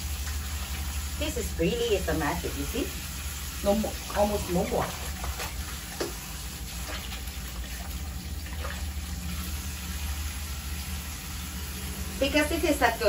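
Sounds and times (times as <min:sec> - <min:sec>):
water splashing: 0:00.0 - 0:10.2.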